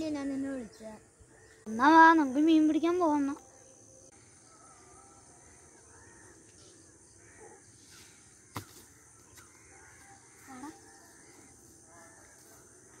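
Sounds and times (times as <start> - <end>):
crows cawing: 5.4 - 7.7, 8.5 - 12.7
thud of landing on ground: 8.5 - 9.0.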